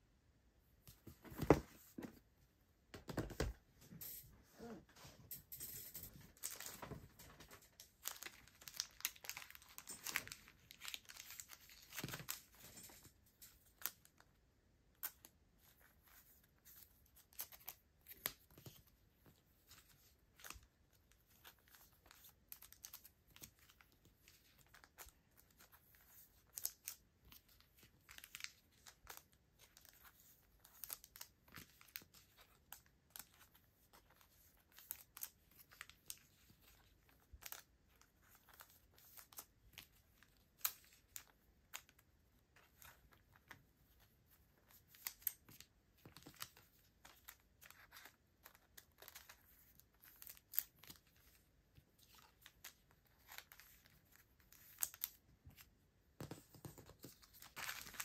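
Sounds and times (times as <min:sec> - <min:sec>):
small clicks and crackles: 0:05.6 - 0:14.3
plastic sleeves crinkling: 0:06.1 - 0:14.3, 0:15.0 - 0:58.0.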